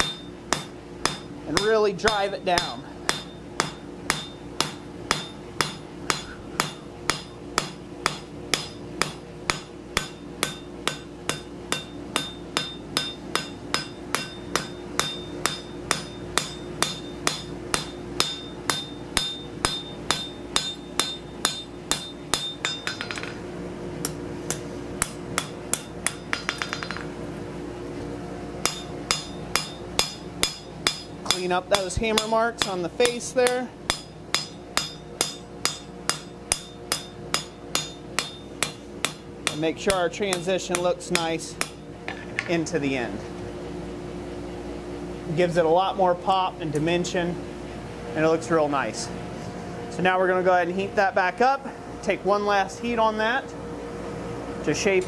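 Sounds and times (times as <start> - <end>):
hammer striking steel on anvil: 0.0 - 23.4, 24.0 - 27.1, 28.6 - 42.5
forge blower humming: 0.0 - 55.0.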